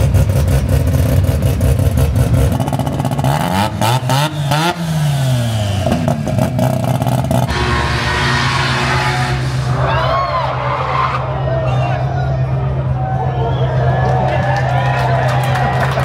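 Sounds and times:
rotary engine revving: 3.4s - 11.8s.

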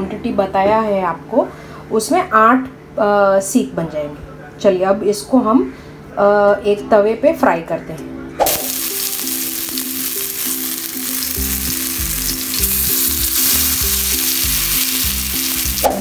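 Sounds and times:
food sizzling in oil: 8.4s - 16.0s
music with bass beat: 11.4s - 16.0s.

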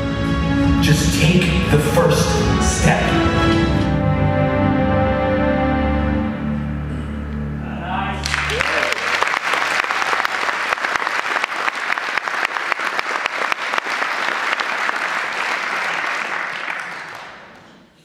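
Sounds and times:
audience applauding: 8.2s - 17.8s.

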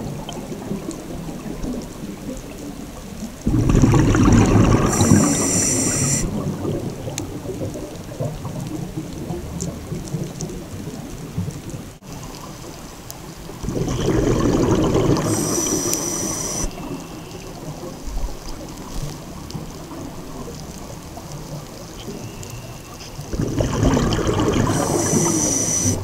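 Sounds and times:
underwater regulator bubbling: 3.4s - 7.8s, 13.6s - 16.9s, 23.3s - 26.0s
hissing breath through regulator: 4.6s - 6.3s, 15.2s - 16.9s, 24.5s - 26.0s.

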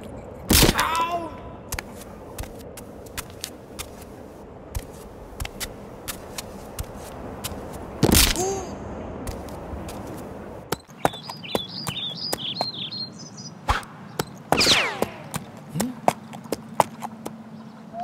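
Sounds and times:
high chirping warbles: 10.7s - 16.3s.

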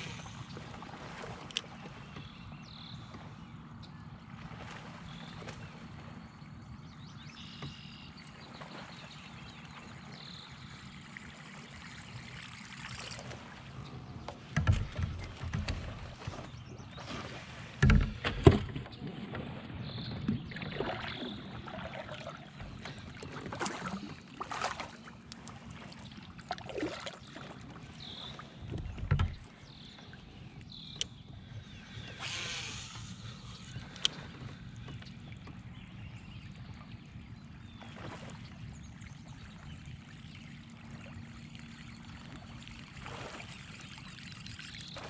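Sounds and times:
gear knocking against kayak: 14.2s - 16.6s, 17.8s - 19.4s, 28.6s - 29.6s.

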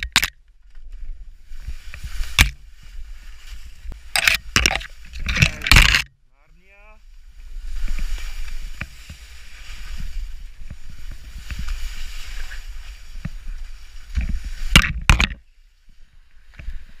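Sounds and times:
skis scraping over snow: 0.8s - 4.1s, 6.6s - 14.7s
wind rumble on microphone: 7.0s - 17.0s.

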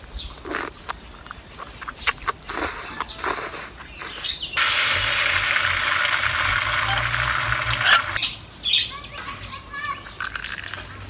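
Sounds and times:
slurping and chewing: 0.0s - 8.2s, 10.1s - 11.0s
sauce sizzling in a wok: 4.6s - 8.2s.

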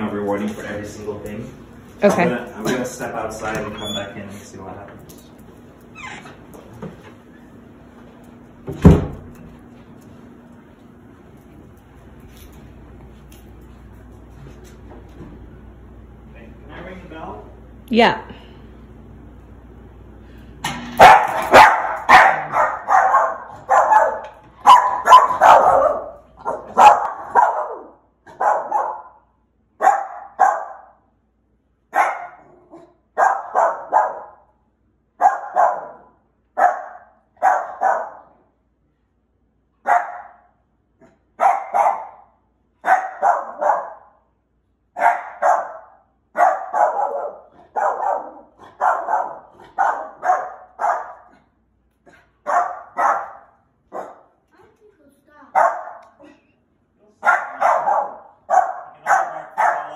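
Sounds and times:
small dog barking: 21.0s - 29.2s, 29.8s - 31.0s, 31.9s - 34.4s, 35.2s - 38.3s, 39.8s - 40.4s, 41.4s - 44.1s, 45.0s - 51.3s, 52.4s - 54.3s, 55.5s - 56.1s, 57.2s - 59.9s.

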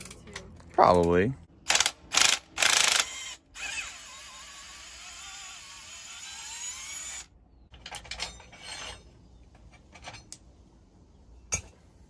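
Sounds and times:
metal parts clinking and clanking: 7.7s - 10.6s.

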